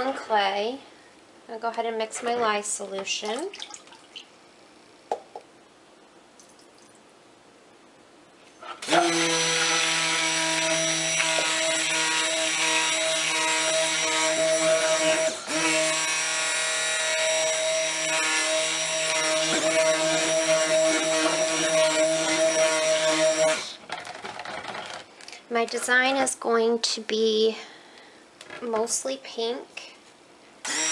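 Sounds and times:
stick blender motor whining: 8.8 - 25.0, 30.6 - 30.9.

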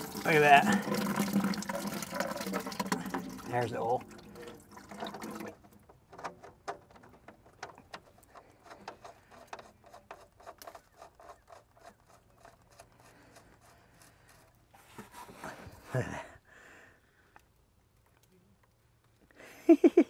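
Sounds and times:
oil dripping into plastic bucket: 0.0 - 11.0.

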